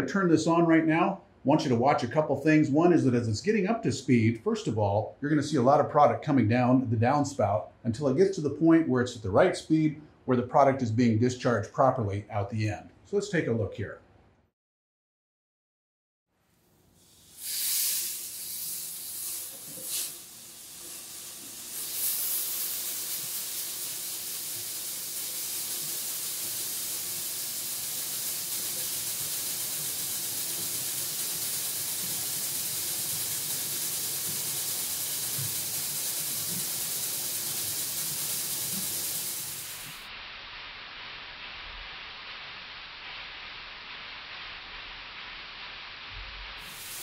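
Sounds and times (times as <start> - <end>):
granular product pouring hiss: 16.9 - 47.0.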